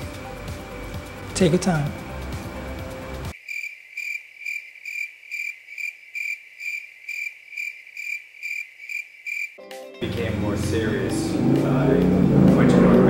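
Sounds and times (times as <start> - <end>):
cricket chirping: 3.3 - 9.6.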